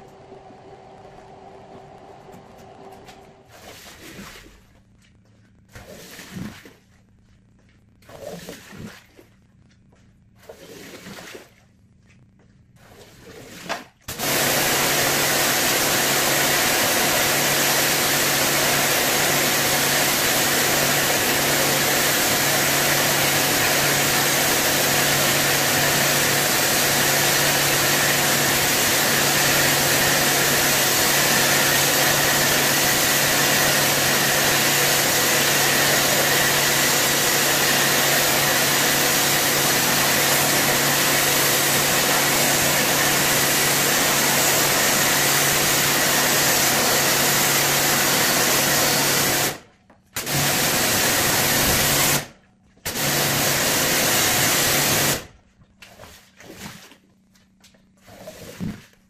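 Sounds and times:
rug-cleaning machine humming and hissing: 14.1 - 49.4.

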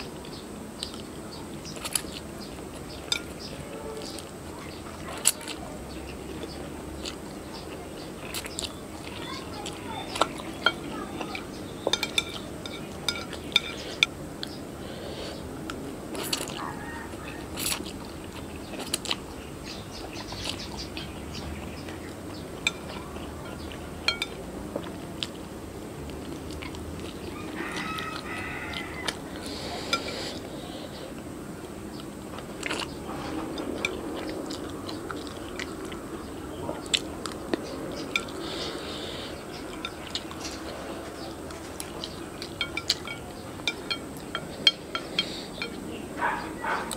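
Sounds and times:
noodles slurped and chewed: 0.0 - 15.5, 16.1 - 31.2, 32.0 - 46.9
low background hum: 0.0 - 46.9
chopsticks scraping on a plate: 10.0 - 14.1, 22.6 - 24.4, 27.6 - 30.5, 38.0 - 45.8.

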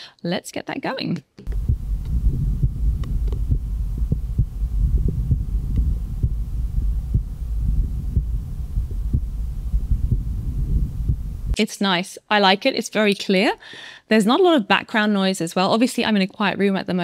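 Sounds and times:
heart beating through stethoscope: 1.5 - 11.6
low rumble: 1.5 - 11.6.

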